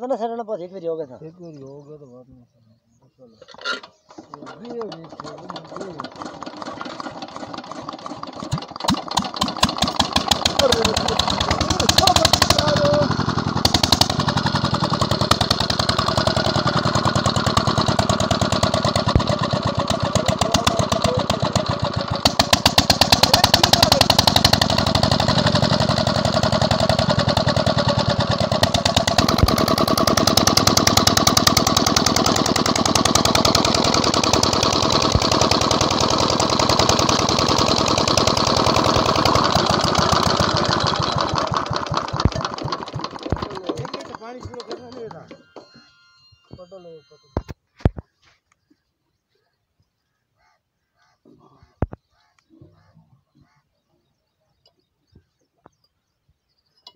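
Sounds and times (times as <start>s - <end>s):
diesel engine chugging: 4.3s - 47.4s.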